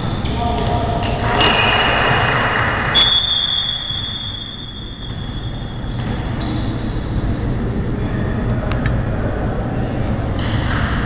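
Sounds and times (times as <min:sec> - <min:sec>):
gym background noise: 0:00.0 - 0:11.0
referee's whistle blast: 0:00.8 - 0:05.8.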